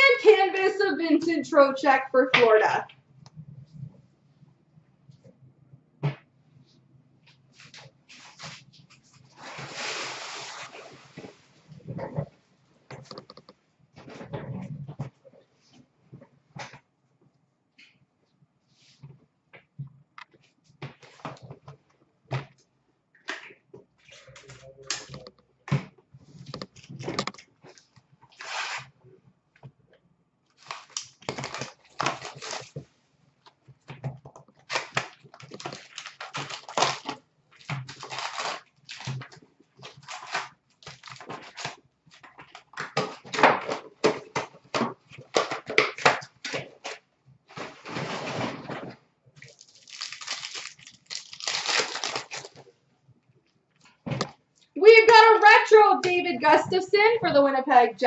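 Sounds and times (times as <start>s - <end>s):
crinkling of card wrappers: 30.5s - 32.9s, 34.4s - 48.1s, 49.4s - 52.8s.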